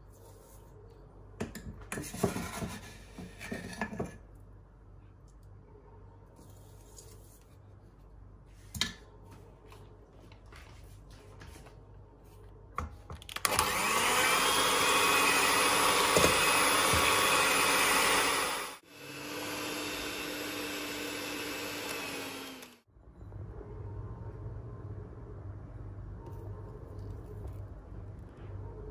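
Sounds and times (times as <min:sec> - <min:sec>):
electric hand mixer whisking: 0:13.5 - 0:22.8.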